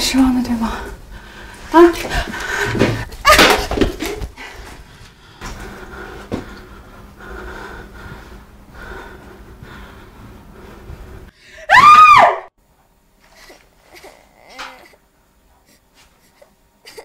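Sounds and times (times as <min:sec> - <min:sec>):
slow heavy breathing: 0:00.6 - 0:03.1, 0:04.3 - 0:11.7
loud high scream: 0:11.7 - 0:12.5.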